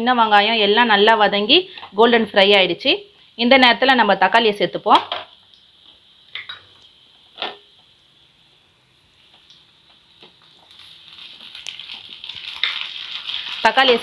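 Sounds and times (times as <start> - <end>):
faint sizzle in a pan: 0.0 - 14.0.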